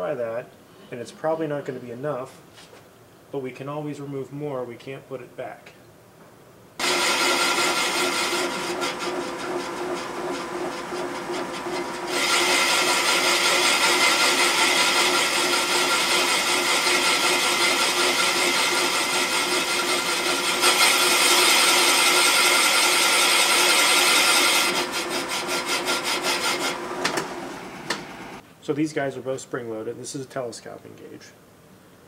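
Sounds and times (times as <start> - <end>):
cutter cutting metal: 6.8 - 27.3
machine spindle humming: 6.8 - 28.4.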